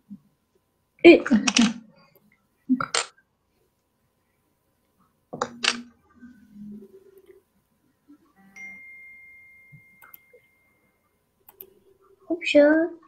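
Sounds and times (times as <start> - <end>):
high ringing ding: 8.4 - 11.1.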